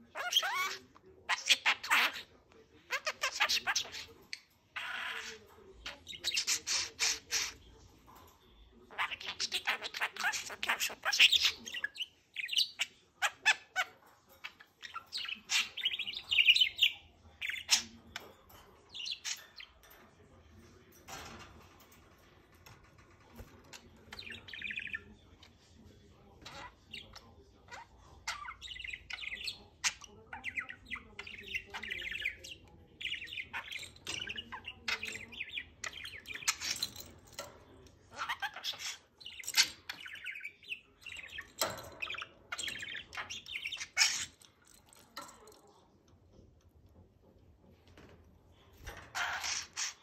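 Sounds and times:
budgerigar chattering and warbling: 0:00.0 - 0:02.3, 0:06.0 - 0:07.6, 0:38.1 - 0:44.4.

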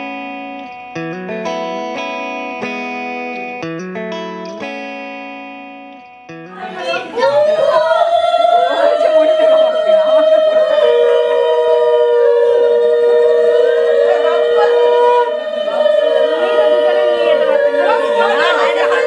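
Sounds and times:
voices: 0:06.5 - 0:19.0.

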